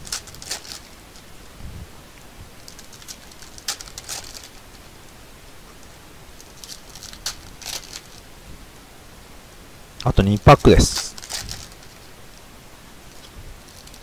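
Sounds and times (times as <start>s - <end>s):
foil wrappers crinkling: 0.0s - 1.4s, 2.6s - 4.9s, 6.4s - 8.3s, 10.5s - 12.2s, 13.1s - 14.0s.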